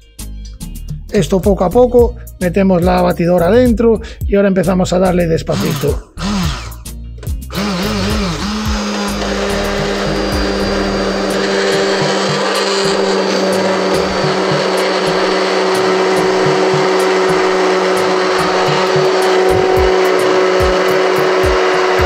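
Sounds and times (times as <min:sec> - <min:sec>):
immersion blender motor hum: 0:05.5 - 0:22.0
sauce churning: 0:07.6 - 0:21.9.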